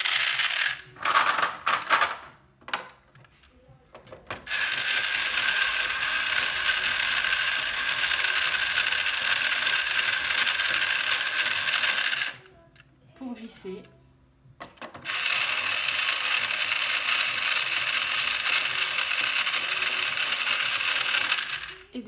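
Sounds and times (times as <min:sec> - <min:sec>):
toy drill ratcheting clatter: 0:00.0 - 0:01.4, 0:04.5 - 0:12.4, 0:15.0 - 0:21.9.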